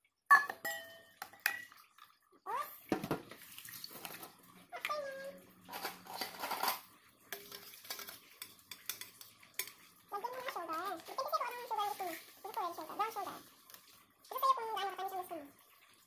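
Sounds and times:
utensil scraping a metal pot: 5.7 - 13.5.

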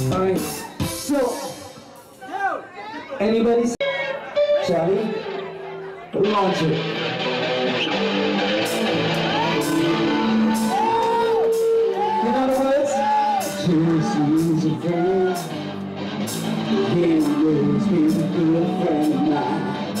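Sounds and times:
live band playing: 0.0 - 2.3, 3.8 - 20.0
person singing: 9.2 - 15.6, 16.7 - 20.0.

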